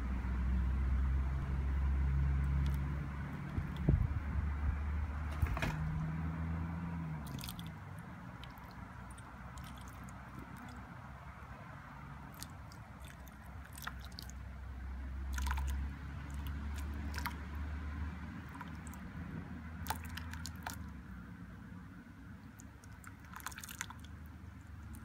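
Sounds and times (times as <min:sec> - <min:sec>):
water pouring and splashing: 0:07.2 - 0:10.9, 0:12.3 - 0:14.4, 0:15.2 - 0:17.6, 0:18.4 - 0:19.0, 0:19.8 - 0:20.9, 0:22.6 - 0:25.0.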